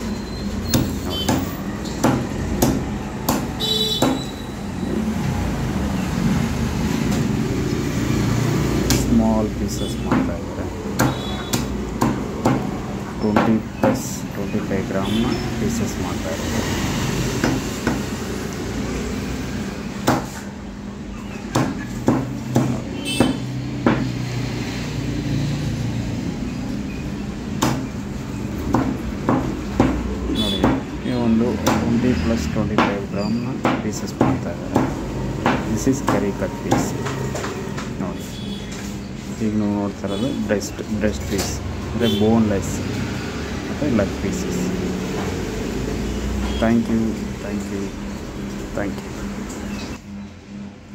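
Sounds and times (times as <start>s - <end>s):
cleaver chopping on wooden block: 0.7s - 4.3s, 10.0s - 10.3s, 10.9s - 12.8s, 17.4s - 18.1s, 20.0s - 20.4s, 21.5s - 24.2s, 27.6s - 27.9s, 28.7s - 30.9s, 33.6s - 37.9s.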